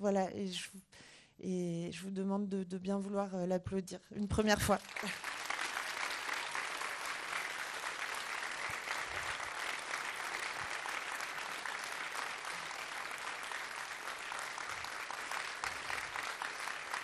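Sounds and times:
audience applauding: 0:04.8 - 0:17.0.

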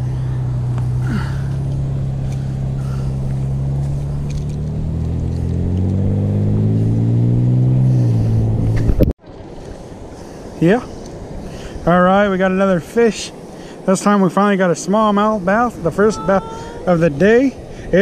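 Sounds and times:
engine running: 0:00.0 - 0:10.4.

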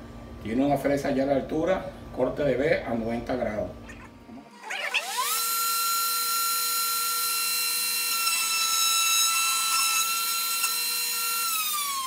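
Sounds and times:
wood router motor whine: 0:04.5 - 0:12.0.

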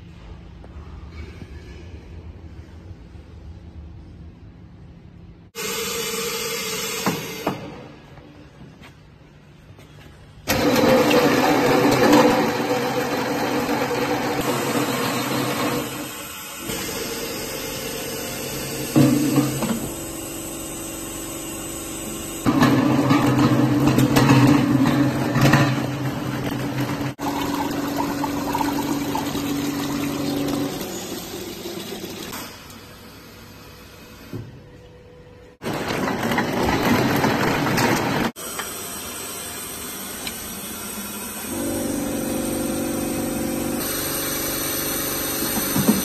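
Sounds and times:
mechanical hum: 0:00.0 - 0:46.0
conveyor noise: 0:34.8 - 0:38.4.

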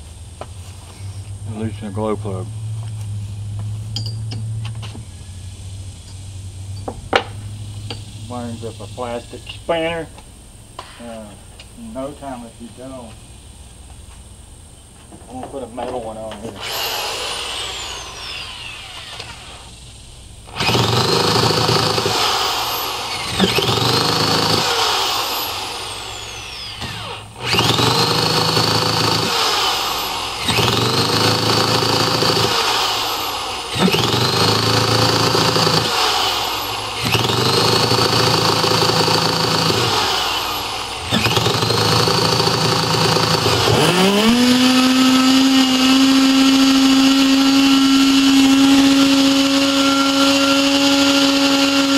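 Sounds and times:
electric starter whining: 0:16.3 - 0:51.9.

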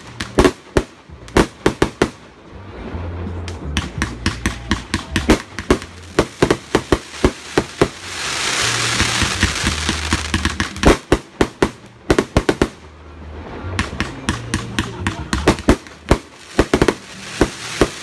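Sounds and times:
firework bangs: 0:03.7 - 0:12.8, 0:13.8 - 0:18.0
firework hiss: 0:05.2 - 0:11.5, 0:15.5 - 0:18.0.

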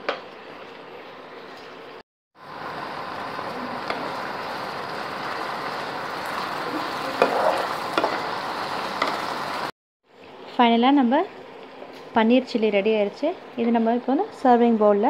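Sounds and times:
food sizzling in a frying pan: 0:00.3 - 0:09.8
metal spatula scraping pan: 0:07.2 - 0:08.1.

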